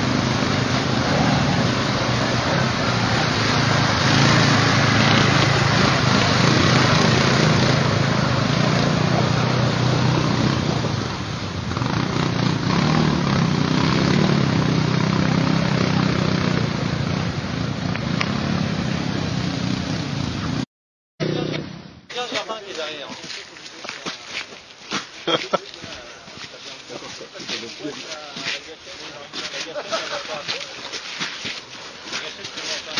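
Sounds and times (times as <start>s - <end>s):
water splashing: 0.0s - 11.5s, 22.1s - 32.9s
quad bike engines under load: 0.0s - 20.6s, 21.2s - 32.9s.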